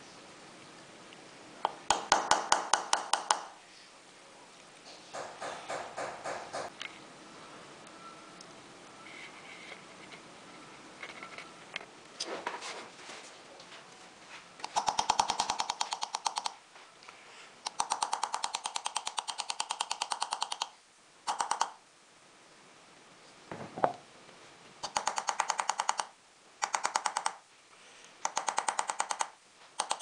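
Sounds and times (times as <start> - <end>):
engraving tool tapping metal: 1.7 - 3.5.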